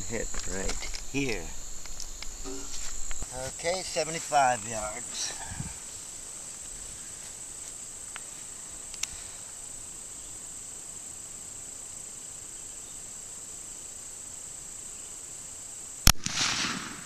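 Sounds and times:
insects trilling: 0.0s - 17.0s
small clicks: 8.9s - 9.2s.

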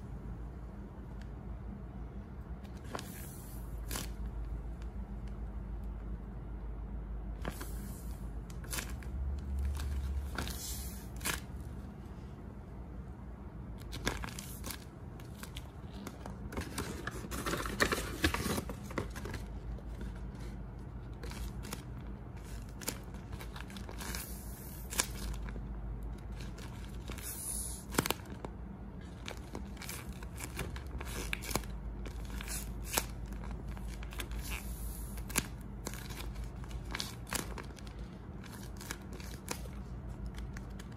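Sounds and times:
paper and tape crinkling: 13.8s - 40.9s.

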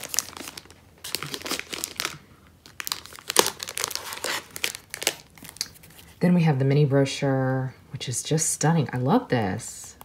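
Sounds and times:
plastic sleeve crinkling: 0.0s - 6.2s.

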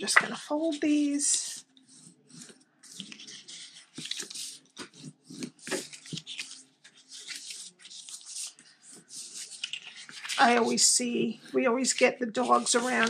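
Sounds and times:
paper rustling and scraping: 0.0s - 13.0s.

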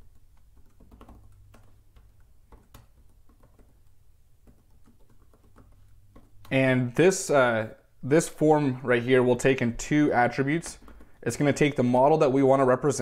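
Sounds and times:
faint keyboard typing: 0.0s - 6.6s, 10.2s - 12.1s.

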